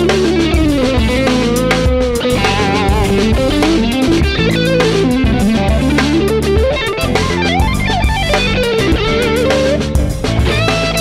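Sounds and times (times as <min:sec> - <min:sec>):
electric guitar solo: 0:00.0 - 0:11.0.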